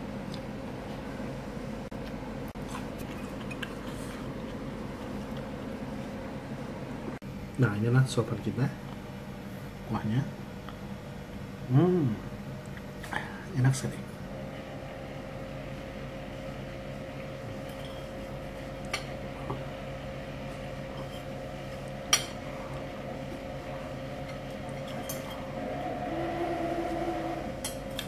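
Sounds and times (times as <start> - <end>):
steady hum: 0.0 - 28.0
loud steady tone: 25.3 - 27.6.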